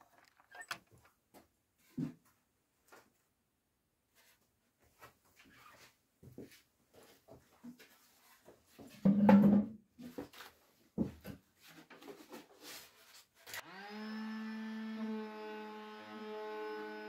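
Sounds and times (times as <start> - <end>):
handling knocks and clicks: 0.0 - 1.2.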